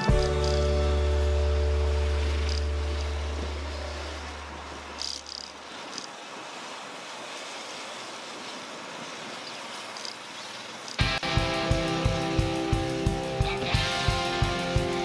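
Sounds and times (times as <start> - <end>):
background music: 0.0 - 3.3, 11.0 - 15.0.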